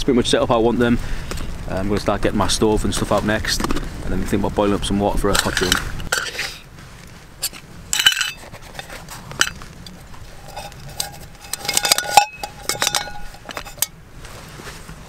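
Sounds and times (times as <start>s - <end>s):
metal cook pots clinking: 5.3s - 6.6s, 7.4s - 14.0s.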